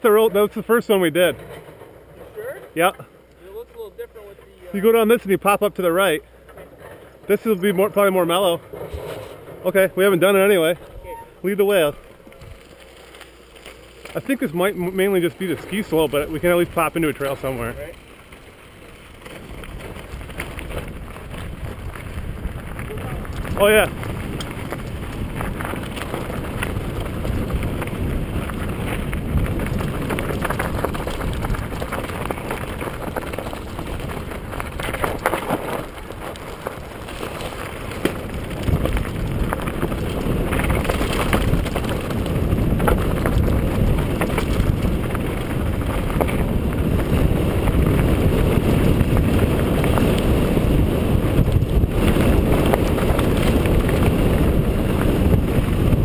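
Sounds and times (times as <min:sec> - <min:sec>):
bike rattling over stones: 0:00.0 - 0:56.0
tyres crunching on gravel: 0:00.0 - 0:56.0
wind on microphone: 0:19.6 - 0:36.4, 0:37.8 - 0:56.0.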